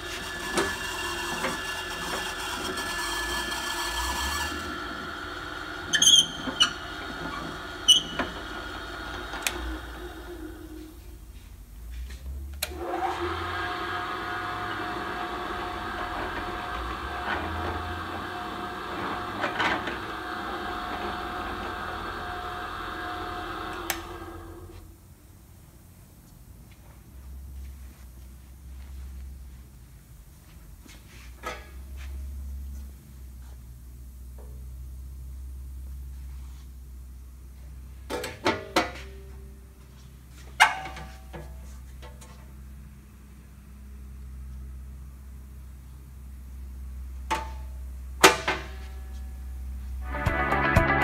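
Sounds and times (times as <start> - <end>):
drill press motor running: 0.0 - 10.9, 12.7 - 24.6
drill press spinning down: 0.0 - 10.9, 12.7 - 24.7.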